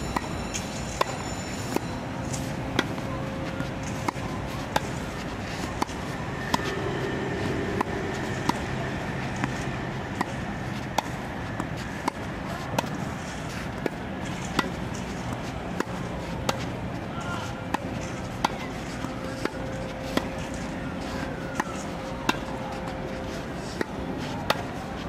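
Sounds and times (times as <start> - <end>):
steady background hum: 0.0 - 25.0
tennis ball struck by rackets: 0.9 - 16.7, 23.6 - 24.8.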